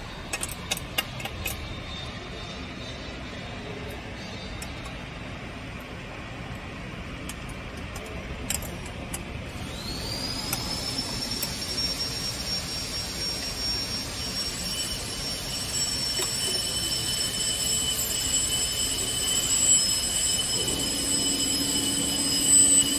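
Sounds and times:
steady machine noise: 0.0s - 22.9s
high whine: 9.5s - 22.9s.

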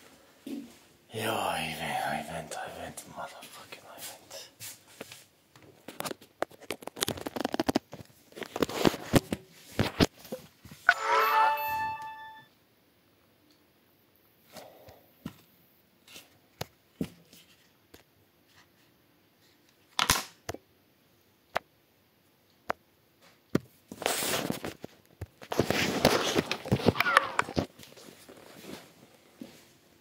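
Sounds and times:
clicks and handling noises: 5.0s - 10.4s.

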